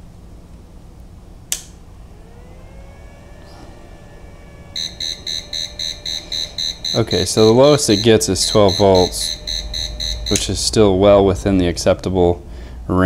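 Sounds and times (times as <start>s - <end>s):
faint rising tone: 0.7s - 12.5s
power switch click: 1.5s - 1.8s
rapid high-pitched alarm beeps: 4.7s - 11.0s.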